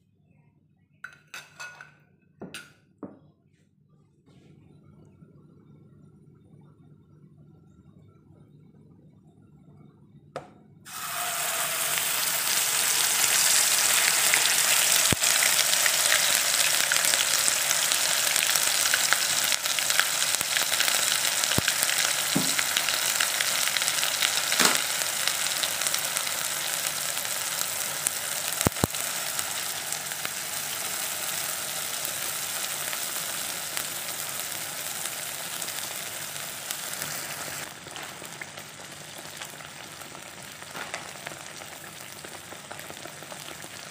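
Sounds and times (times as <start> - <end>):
paste sizzling in hot oil: 10.9 - 43.9.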